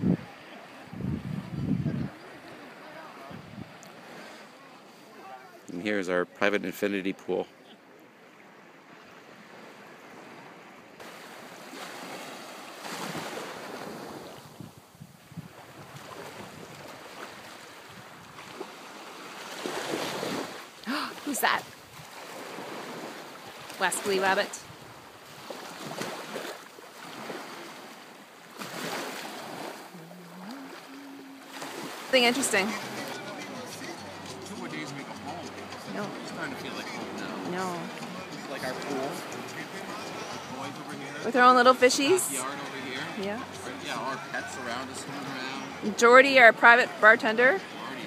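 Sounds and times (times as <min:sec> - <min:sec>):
wind buffeting microphone: 0:00.0 - 0:02.2, 0:03.3 - 0:03.8, 0:14.4 - 0:16.9
small waves washing onto shore: 0:00.0 - 0:06.5, 0:07.1 - 0:48.0
ocean surf on sandy beach: 0:00.0 - 0:48.0.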